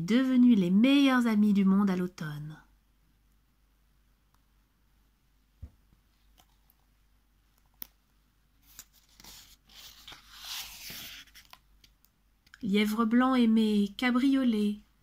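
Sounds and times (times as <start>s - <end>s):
book page rustling and turning: 8.6s - 12.0s.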